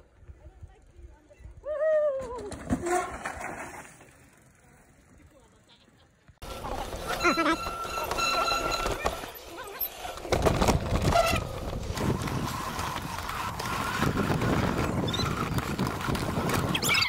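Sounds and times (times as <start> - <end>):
bike rattling over bumps: 6.4 - 17.0
wind buffeting microphone: 10.7 - 17.0.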